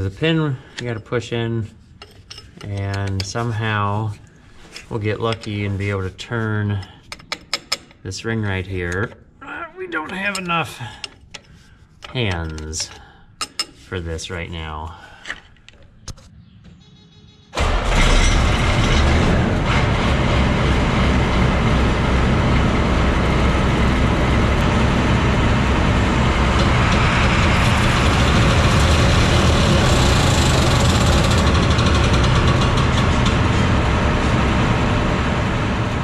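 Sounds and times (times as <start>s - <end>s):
combine harvester mechanical din: 17.6s - 36.0s.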